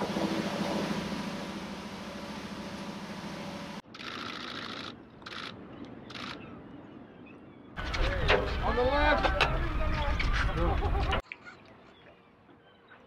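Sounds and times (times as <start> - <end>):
ship diesel engine droning: 0.0 - 3.8.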